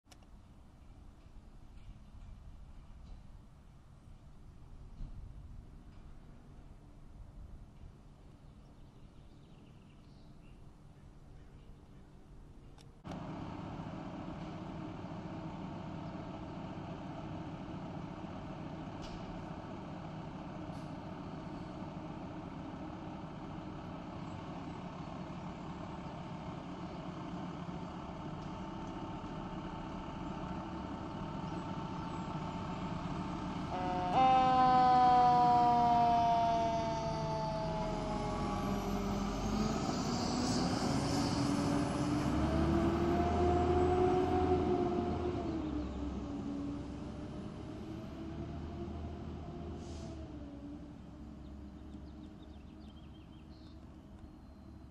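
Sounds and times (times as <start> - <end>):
diesel engine idling: 13.0 - 54.9
siren wail winding up: 33.7 - 41.5
siren tone falling in pitch: 33.7 - 41.6.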